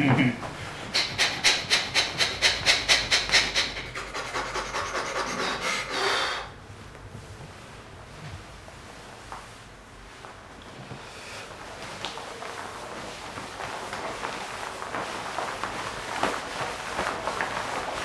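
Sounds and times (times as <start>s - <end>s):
rasping rub strokes: 0.7s - 6.5s.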